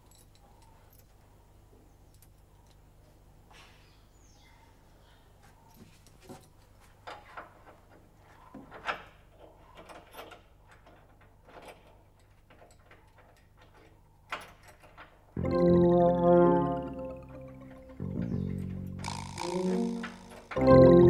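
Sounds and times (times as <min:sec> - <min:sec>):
clicks and knocks at door lock: 0:08.7 - 0:15.3.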